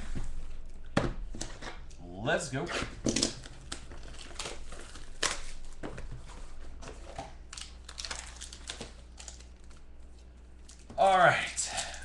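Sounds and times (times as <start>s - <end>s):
plastic wrapping crinkling and tearing: 3.1s - 6.1s, 7.0s - 10.9s.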